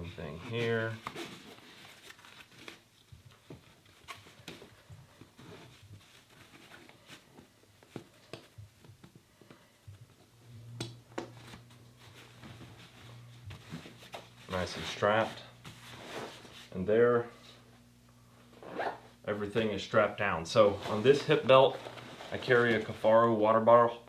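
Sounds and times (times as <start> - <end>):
webbing straps rustling and scraping: 18.6 - 19.0, 20.5 - 22.9.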